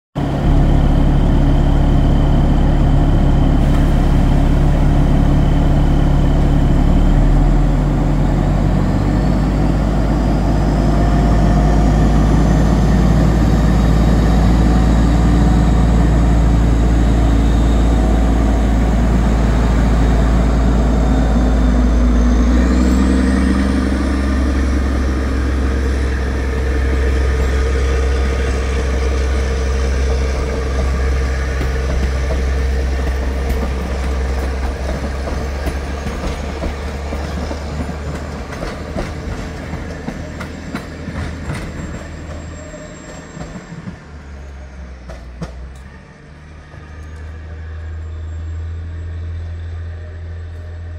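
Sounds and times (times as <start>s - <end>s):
diesel locomotive engine with whine: 0.1s - 50.9s.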